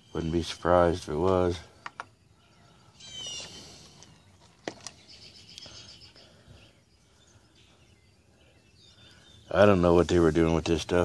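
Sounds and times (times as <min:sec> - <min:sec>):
songbirds singing: 0:00.0 - 0:11.0
sharp clicks: 0:01.8 - 0:02.2.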